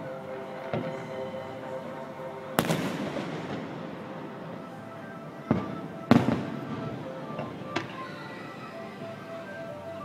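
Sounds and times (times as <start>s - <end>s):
music playing: 0.0s - 10.0s.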